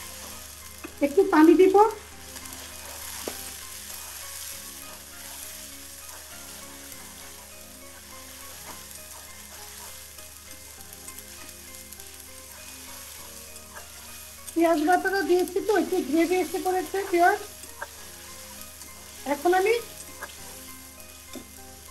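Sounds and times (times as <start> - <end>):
onions sizzling in oil: 0.0 - 21.9
spatula scraping a pan: 2.3 - 11.5, 12.4 - 21.2.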